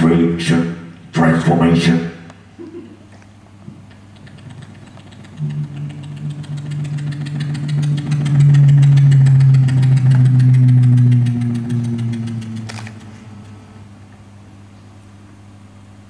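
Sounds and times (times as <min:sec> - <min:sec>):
low engine-like drone: 0:00.0 - 0:03.0, 0:03.9 - 0:16.0
fast rattle of ticks: 0:03.9 - 0:13.7.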